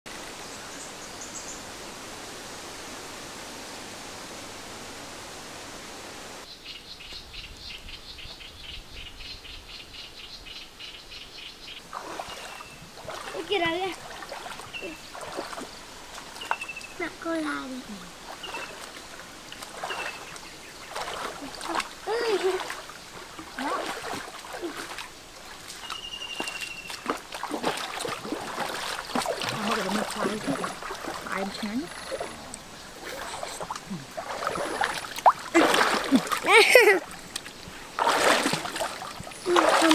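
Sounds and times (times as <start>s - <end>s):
steady rushing hiss: 0.1s - 6.5s
feet wading through shallow water: 11.7s - 39.9s
animal chirping: 31.3s - 33.6s.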